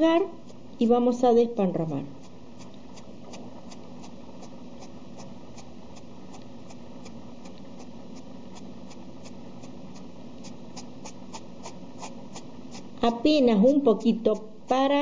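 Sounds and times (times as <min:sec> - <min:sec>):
sponge dabbing paint: 0:10.4 - 0:15.0.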